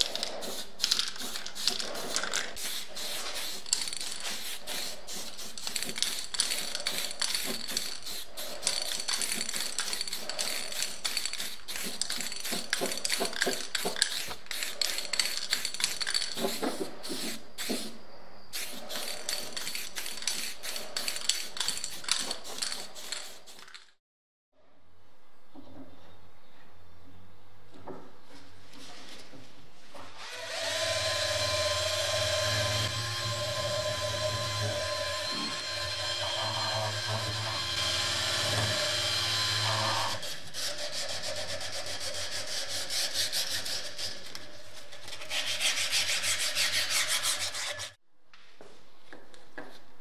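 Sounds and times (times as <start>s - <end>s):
spray paint hissing onto metal: 0.0s - 23.8s.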